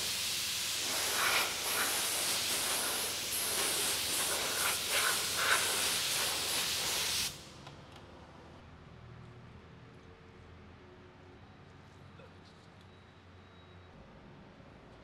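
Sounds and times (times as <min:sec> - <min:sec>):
paint spray gun hissing: 0:00.0 - 0:07.5.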